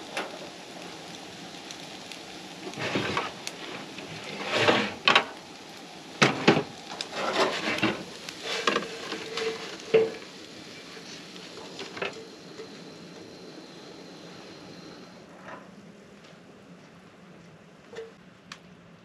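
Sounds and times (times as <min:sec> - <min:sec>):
spatula scraping frying pan: 0:04.2 - 0:05.3, 0:06.2 - 0:10.2.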